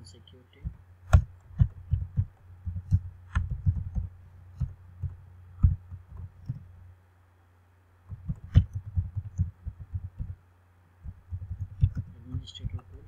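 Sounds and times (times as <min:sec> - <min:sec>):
faint low hum: 0:00.0 - 0:13.0
keyboard typing: 0:00.6 - 0:06.6, 0:08.1 - 0:10.4, 0:11.0 - 0:13.0.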